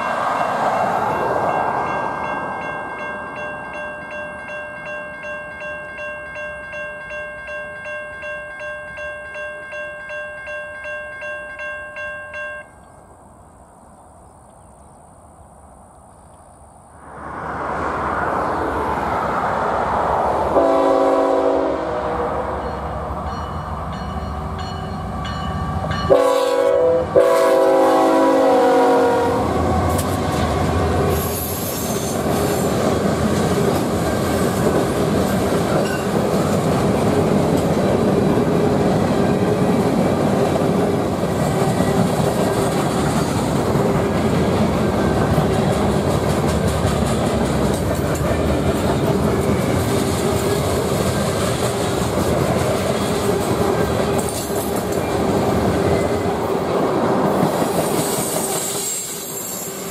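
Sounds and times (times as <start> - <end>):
train horn blast: 20.5 - 22.9, 26.0 - 32.7
freight cars rumbling and clattering: 29.6 - 58.2.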